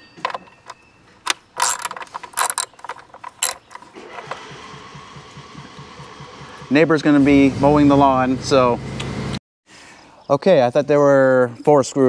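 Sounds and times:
hand ratchet clicking: 0:00.3 - 0:04.0
lawn mower engine running: 0:01.6 - 0:09.4.

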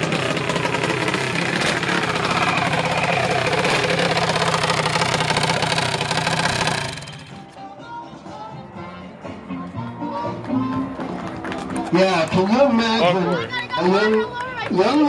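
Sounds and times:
small engine idling: 0:00.0 - 0:07.6.

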